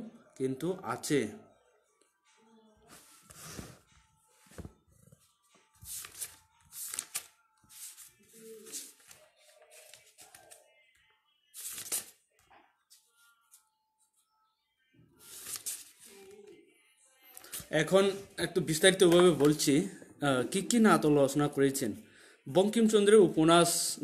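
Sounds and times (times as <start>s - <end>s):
paper rustling: 2.9s - 10.6s, 11.6s - 12.2s, 15.3s - 16.4s.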